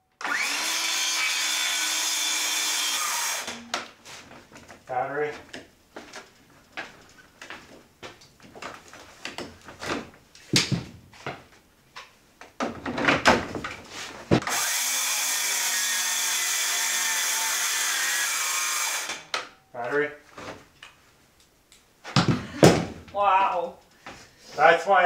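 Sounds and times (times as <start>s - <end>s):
cordless power tool running: 0.2s - 3.7s, 14.4s - 19.3s.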